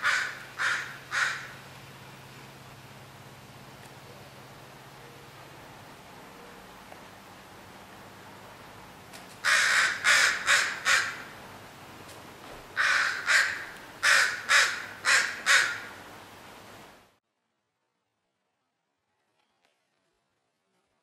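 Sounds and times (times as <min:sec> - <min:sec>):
crow cawing harshly: 0:00.0 - 0:01.6, 0:09.4 - 0:11.4, 0:12.8 - 0:16.0.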